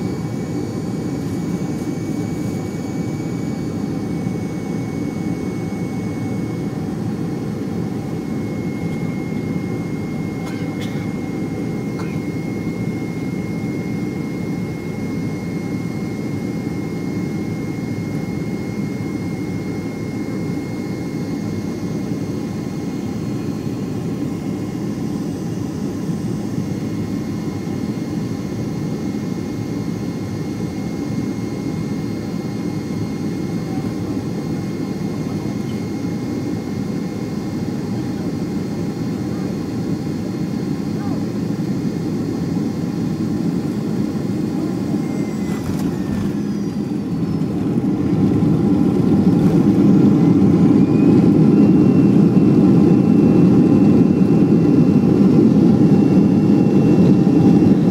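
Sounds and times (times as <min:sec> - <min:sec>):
airliner engines roaring in cabin: 0:00.0 - 0:57.9.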